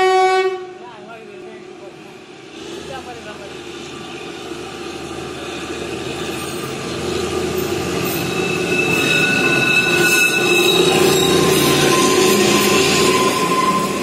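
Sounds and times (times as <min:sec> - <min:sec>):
diesel locomotive engine: 0:00.0 - 0:14.0
high wheel squeal: 0:05.3 - 0:14.0.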